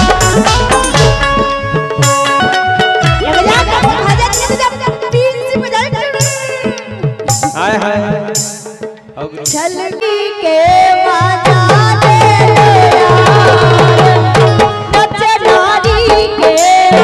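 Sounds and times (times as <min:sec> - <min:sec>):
sustained folk melody: 0:00.0 - 0:05.5
hand drums beating: 0:00.0 - 0:09.9, 0:11.2 - 0:17.0.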